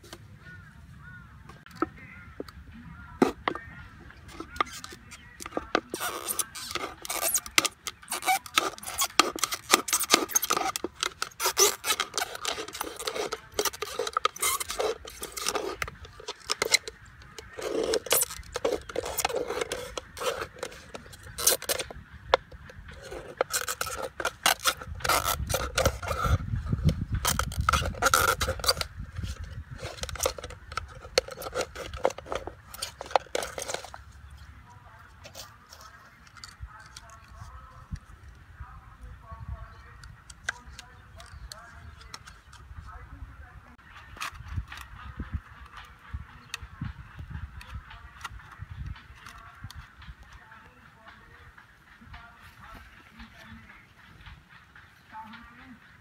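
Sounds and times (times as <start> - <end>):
knife sawing plastic bottle: 4.3 - 34.0.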